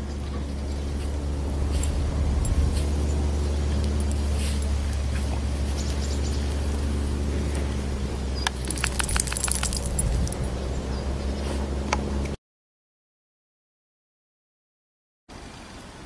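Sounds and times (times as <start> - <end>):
steady low rumble: 0.0 - 11.4
dog collar tag jingling: 3.7 - 5.1, 8.4 - 10.7.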